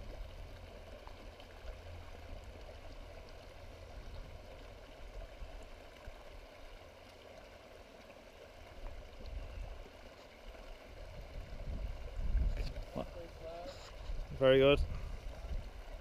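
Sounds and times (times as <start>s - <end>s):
stream running over rocks: 0.0s - 16.0s
wind rumble on microphone: 3.6s - 5.6s, 10.9s - 13.2s, 13.8s - 16.0s.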